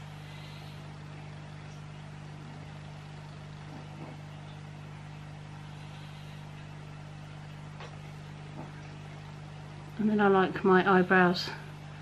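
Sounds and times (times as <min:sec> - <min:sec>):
low hum: 0:00.0 - 0:12.0.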